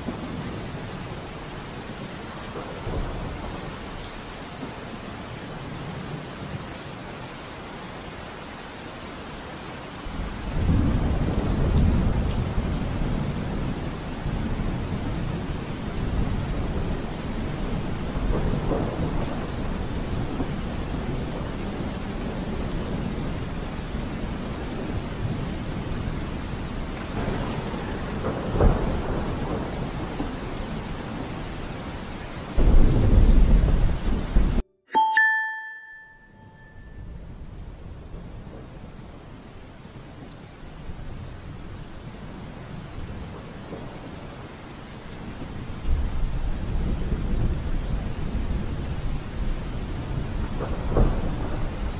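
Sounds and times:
steady rain: 0.0s - 34.6s, 36.6s - 51.9s
rolling thunder: 10.2s - 26.1s, 26.9s - 31.4s, 32.6s - 34.6s, 45.9s - 51.9s
short bell-like ding: 34.9s - 37.0s.

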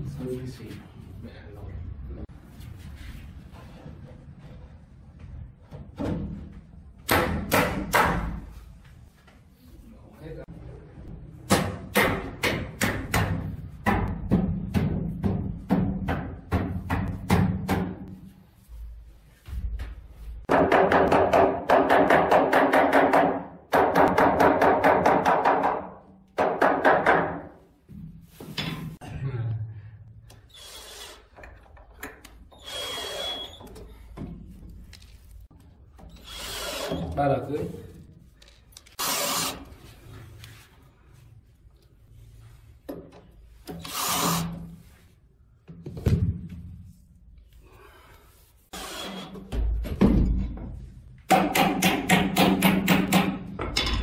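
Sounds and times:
cordless drill driving screw: 32.6s - 33.6s, 36.1s - 37.1s, 39.0s - 39.7s, 43.8s - 44.6s, 48.8s - 49.4s.

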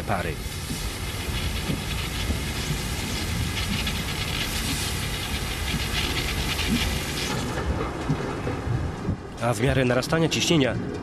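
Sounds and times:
low mechanical rumble: 0.0s - 11.0s
hiss: 0.3s - 7.6s.

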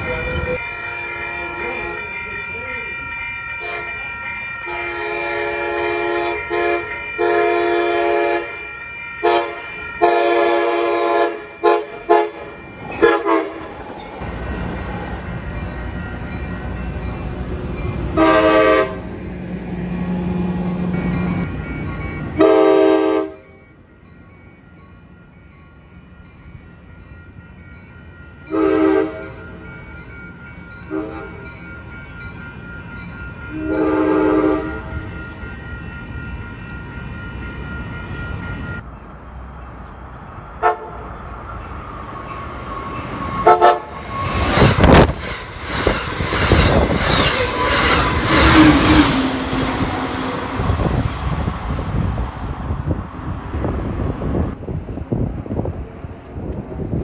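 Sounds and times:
train rumbling past: 0.0s - 57.0s
train horn chord blasts: 0.6s - 2.1s, 4.7s - 8.6s, 9.2s - 13.6s, 18.1s - 19.2s, 22.4s - 23.6s, 28.5s - 29.4s, 30.8s - 31.5s, 33.5s - 35.0s, 40.6s - 41.1s, 43.3s - 45.0s
clicking train wheels: 37.4s - 54.6s.

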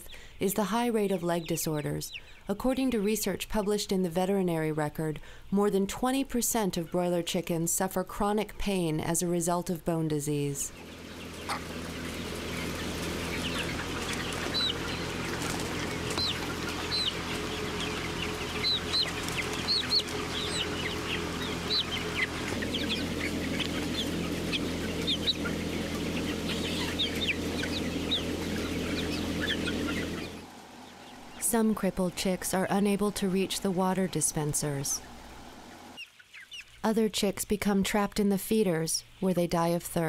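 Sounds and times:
chicks peeping: 0.0s - 39.8s
low mechanical hum: 10.4s - 36.0s.

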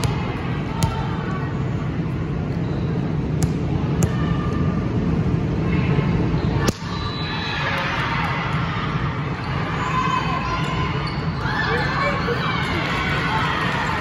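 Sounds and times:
volleyballs being hit: 0.0s - 1.2s, 3.3s - 4.3s
busy gym crowd rumble: 0.0s - 14.0s.

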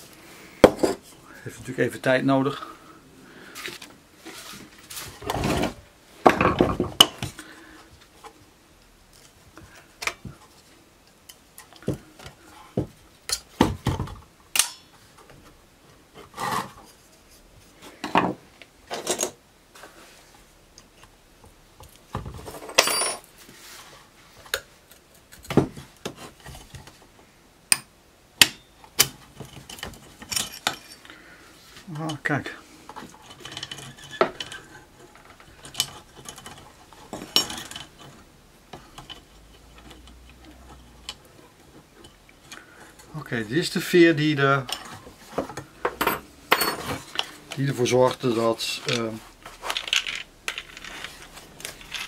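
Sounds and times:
metal parts clinking and scraping: 29.4s - 31.1s, 33.0s - 38.3s, 45.9s - 52.0s.

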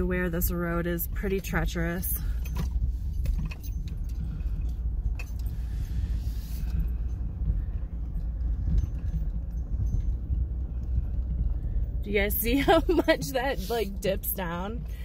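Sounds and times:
van rumbling over dirt road: 0.0s - 15.0s
small clicks and rattles: 1.2s - 15.0s.

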